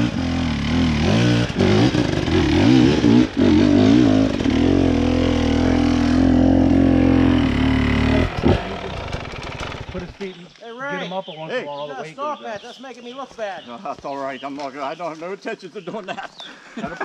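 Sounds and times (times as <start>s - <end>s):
dirt bike engine revving: 0.0s - 10.4s.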